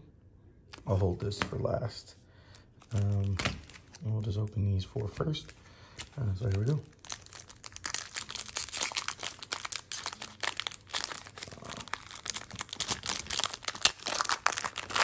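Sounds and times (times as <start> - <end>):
foil wrapper crinkling and tearing: 2.8 - 4.4, 5.2 - 15.0.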